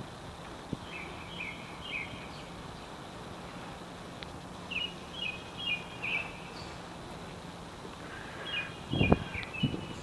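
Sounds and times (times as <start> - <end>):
low outdoor hum: 0.0 - 10.0
small bird chirping: 0.8 - 3.0, 4.7 - 6.9, 8.4 - 10.0.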